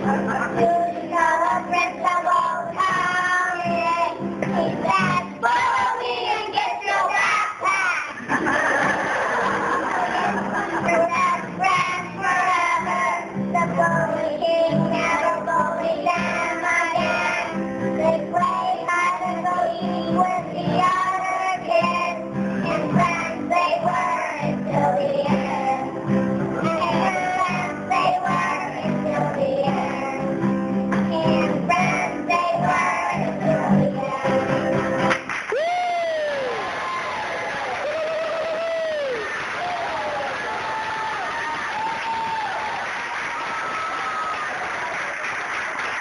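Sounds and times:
young children singing: 0:00.0 - 0:35.0
musical accompaniment: 0:08.2 - 0:36.6.

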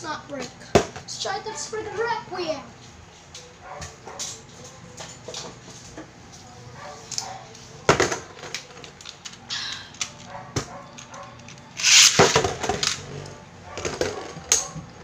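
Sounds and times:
clicks of plastic parts handled: 0:08.0 - 0:13.0
spinning tops clattering: 0:11.8 - 0:13.0
ripcord launch zip: 0:11.8 - 0:13.1.

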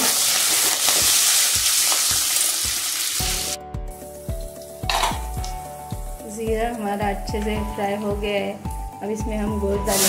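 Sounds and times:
spices sizzling in hot oil: 0:00.0 - 0:07.5, 0:08.2 - 0:10.0
background music with steady beat: 0:01.0 - 0:10.0.

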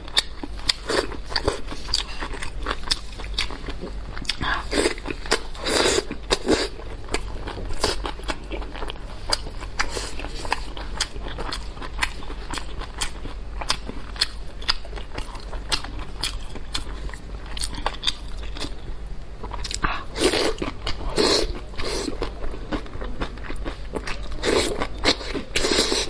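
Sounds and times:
person chewing food: 0:00.1 - 0:18.8, 0:19.4 - 0:26.0.

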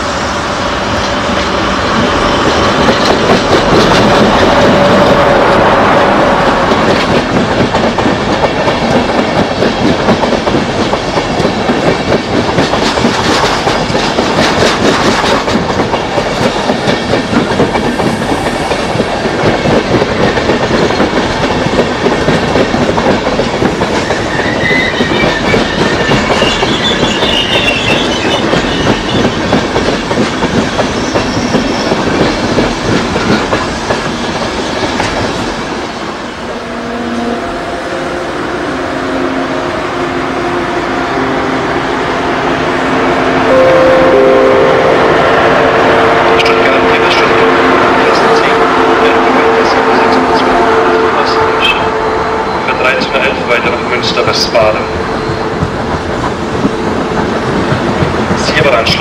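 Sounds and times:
train wheels clattering over rail joints: 0:01.0 - 0:05.2, 0:06.6 - 0:35.6
high wheel squeal: 0:24.1 - 0:29.4.

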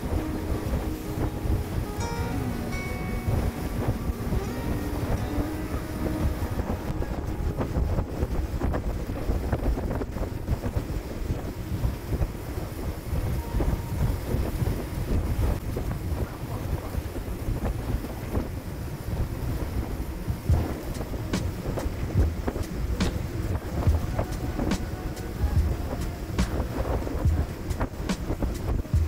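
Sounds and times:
speedboat rumble: 0:00.0 - 0:29.0
wind buffeting microphone: 0:00.0 - 0:29.0.

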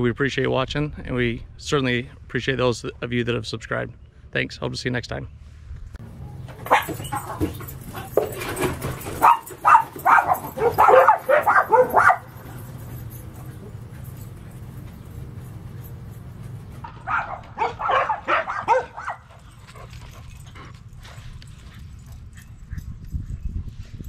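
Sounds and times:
dog barking and yipping: 0:06.1 - 0:19.9.

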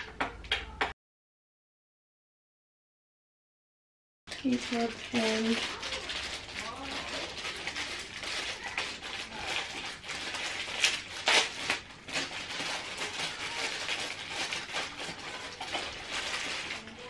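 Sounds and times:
packaging rustling: 0:04.3 - 0:17.0.

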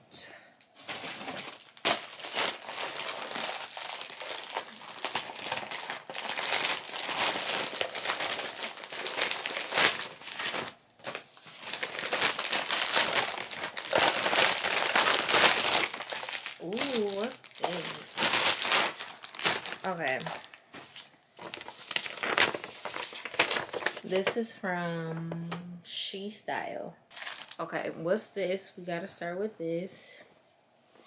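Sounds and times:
plastic bag crinkling: 0:00.7 - 0:24.4, 0:27.1 - 0:27.7.

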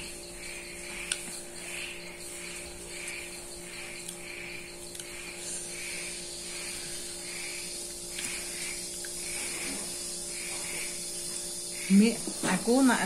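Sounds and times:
insect chorus drone: 0:00.0 - 0:13.0
low electrical hum: 0:00.0 - 0:13.0.

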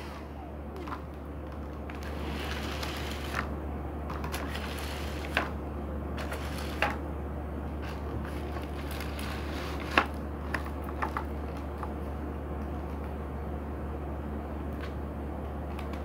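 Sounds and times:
debris crackling up vacuum wand: 0:00.0 - 0:03.5, 0:04.1 - 0:05.6, 0:06.2 - 0:07.0
vacuum cleaner running: 0:00.0 - 0:11.2.

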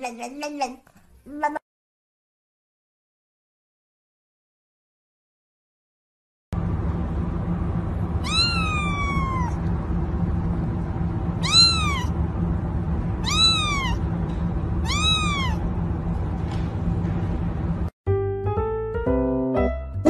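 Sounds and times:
low background hum: 0:06.6 - 0:17.9
kitten meowing: 0:08.2 - 0:09.6, 0:11.4 - 0:12.2, 0:13.2 - 0:14.0, 0:14.8 - 0:15.6.

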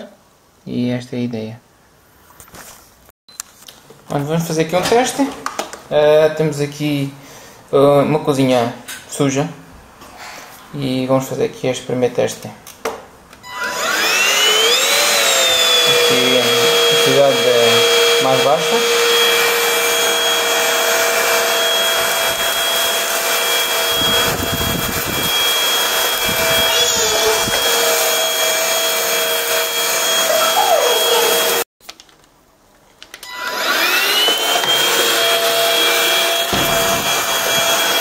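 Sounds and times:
stick vacuum motor whine: 0:13.4 - 0:31.6, 0:33.2 - 0:38.0.

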